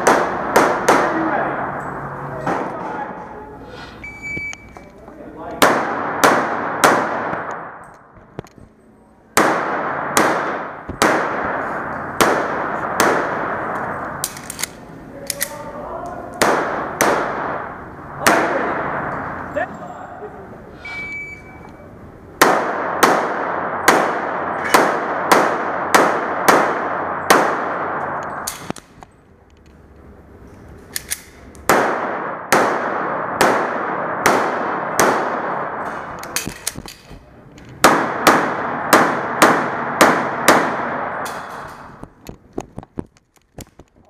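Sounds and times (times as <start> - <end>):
pistol shots echoing indoors: 0.0 - 2.8, 5.5 - 8.0, 9.3 - 15.6, 16.3 - 19.4, 22.4 - 28.7, 31.0 - 36.8, 37.8 - 42.0.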